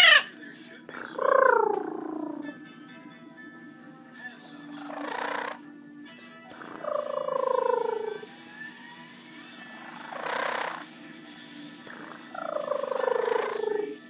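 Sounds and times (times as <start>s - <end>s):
parrot cooing: 0.0s - 2.6s, 4.6s - 5.8s, 6.5s - 8.8s, 9.5s - 11.0s, 11.6s - 14.0s.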